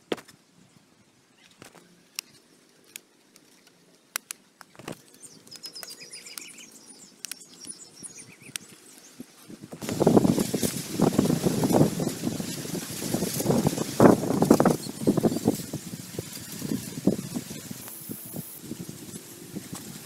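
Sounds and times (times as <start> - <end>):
small birds chirping: 3.8 - 9.5, 13.2 - 20.0.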